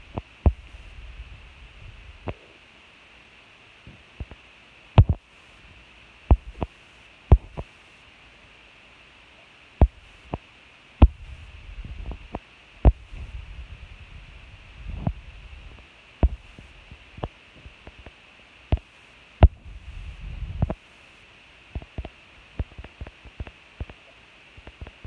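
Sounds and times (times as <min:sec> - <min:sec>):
low rumble: 0:00.0 - 0:02.3, 0:11.0 - 0:17.0.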